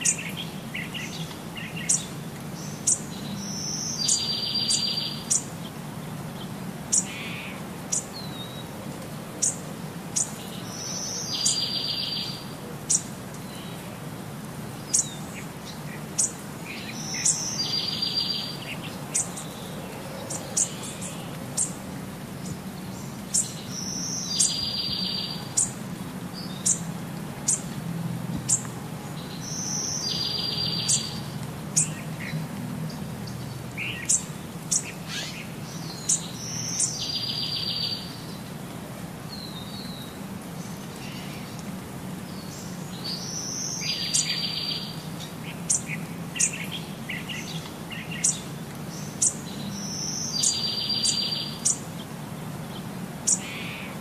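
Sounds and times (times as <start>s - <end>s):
birds chirping and singing: 0.0s - 5.6s, 10.2s - 13.8s, 14.9s - 21.8s, 22.4s - 25.8s, 28.5s - 38.5s, 42.3s - 52.0s.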